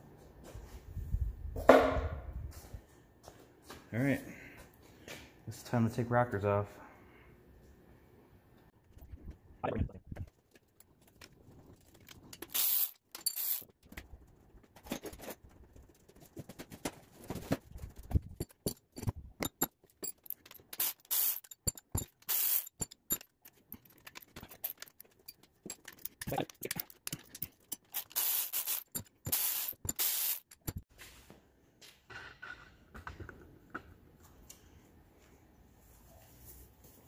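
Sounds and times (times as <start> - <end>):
metal parts clinking: 11.8 - 13.7, 18.4 - 30.8
electric ratchet whirring: 12.5 - 13.6, 20.8 - 21.5, 22.2 - 22.8, 27.9 - 30.8.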